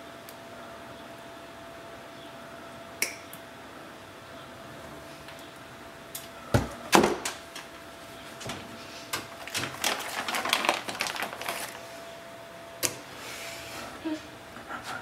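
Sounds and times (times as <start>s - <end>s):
faint steady hum: 0.0s - 15.0s
objects rattling: 9.3s - 11.8s.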